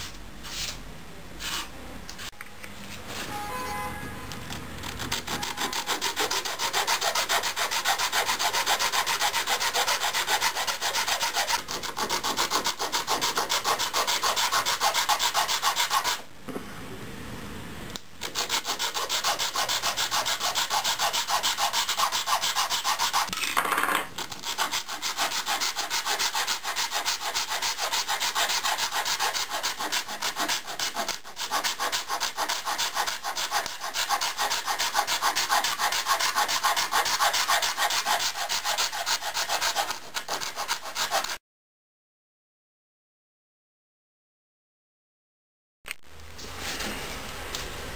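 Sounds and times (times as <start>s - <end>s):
metal file rasping on bamboo: 4.8s - 16.2s, 18.2s - 23.3s, 24.2s - 41.4s.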